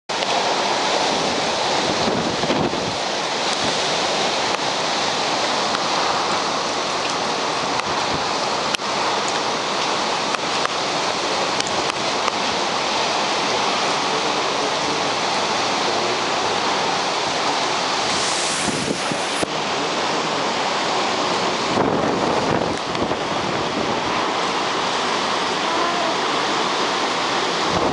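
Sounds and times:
heavy rain: 0:00.1 - 0:27.9
wind buffeting microphone: 0:01.0 - 0:04.3, 0:16.5 - 0:19.5, 0:21.4 - 0:24.4, 0:27.6 - 0:27.9.

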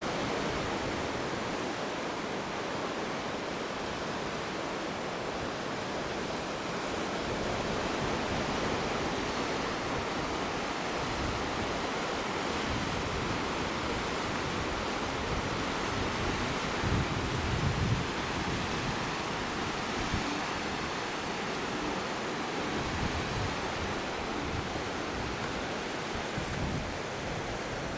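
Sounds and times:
wind buffeting microphone: 0:12.6 - 0:27.9.

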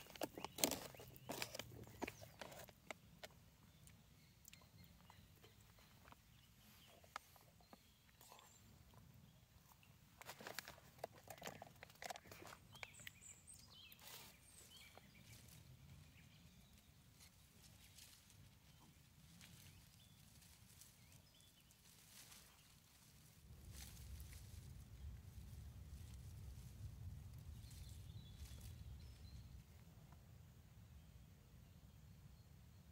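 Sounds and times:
crackles and rustles in leaf litter: 0:10.2 - 0:29.7
faint high bird chirps: 0:27.6 - 0:29.6.

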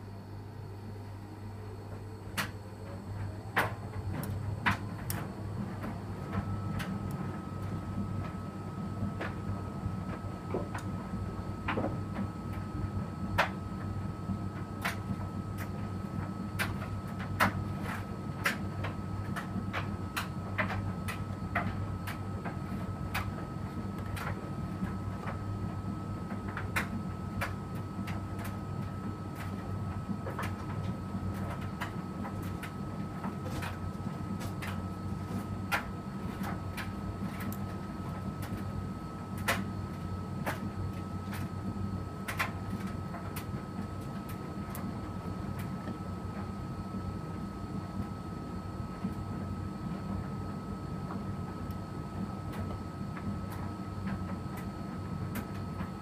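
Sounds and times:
washing machine motor hum: 0:00.0 - 0:56.0.

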